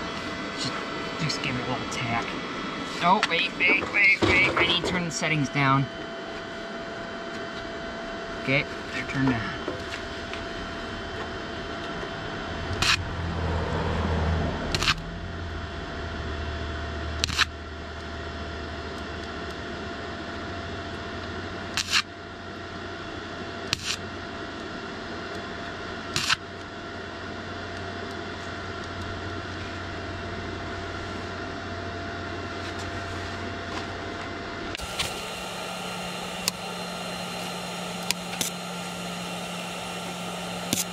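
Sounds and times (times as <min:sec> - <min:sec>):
welder humming: 0:00.0 - 0:40.9
rush of noise: 0:11.6 - 0:17.7.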